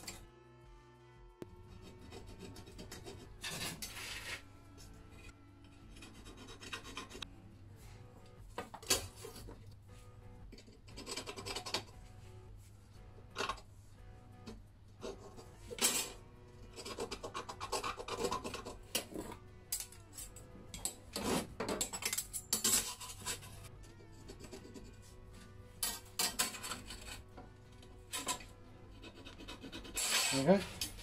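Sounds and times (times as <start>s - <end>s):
scriber scratching steel sheet: 1.7s - 4.6s, 5.9s - 7.2s, 10.5s - 12.0s, 14.4s - 19.4s, 20.1s - 25.1s, 25.8s - 27.3s, 28.1s - 31.0s.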